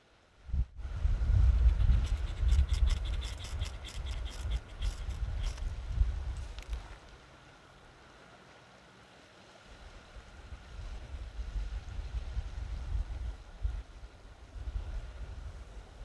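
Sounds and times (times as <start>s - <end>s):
wind buffeting microphone: 0.4s - 6.8s.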